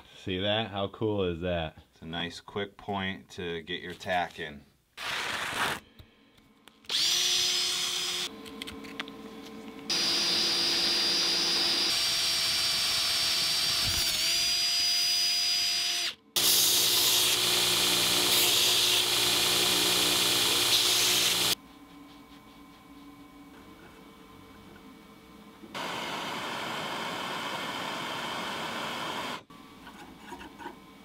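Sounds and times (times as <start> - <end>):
electric drill boring into metal: 6.9 - 8.3, 9.9 - 21.6
belt grinder running: 9.9 - 14.8, 16.0 - 21.6.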